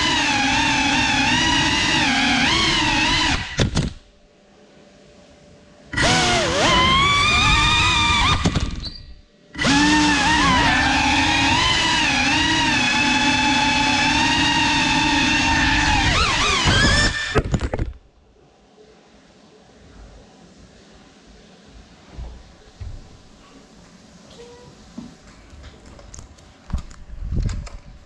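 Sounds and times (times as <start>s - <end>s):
drone motors whining: 0.0s - 3.8s, 5.9s - 17.9s.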